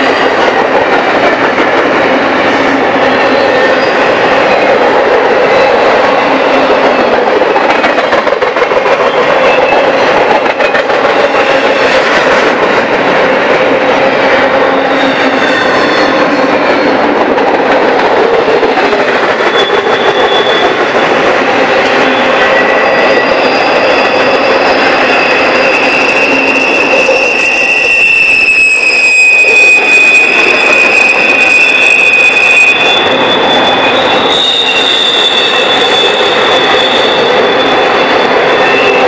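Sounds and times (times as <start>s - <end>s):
freight train rumbling and rattling: 0.0s - 39.0s
high-pitched wheel squeals: 11.2s - 17.0s, 18.7s - 39.0s.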